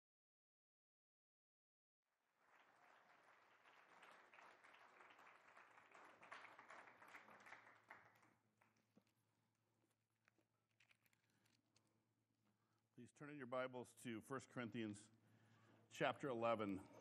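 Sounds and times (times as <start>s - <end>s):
faint applause: 2.2s - 8.8s.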